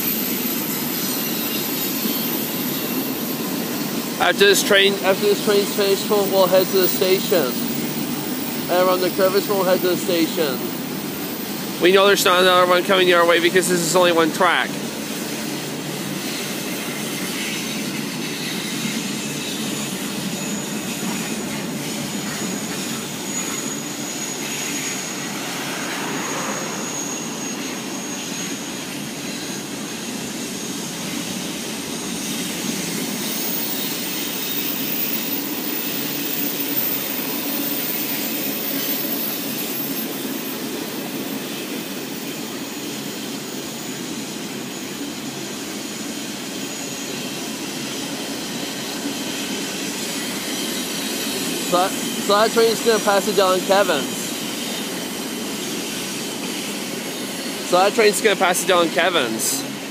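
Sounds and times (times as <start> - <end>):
freight train rolling on rails: 0.0 - 59.9
faint high whine: 16.3 - 30.3.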